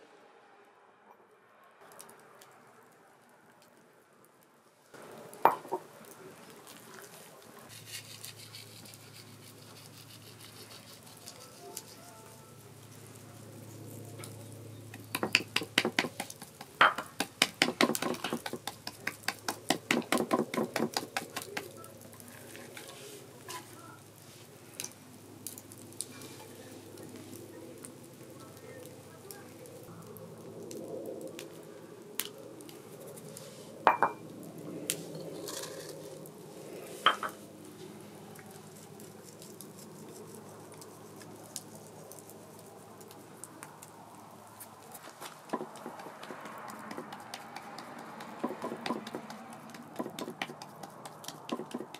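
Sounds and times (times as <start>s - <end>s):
steady low hiss: 18.7s - 45.5s.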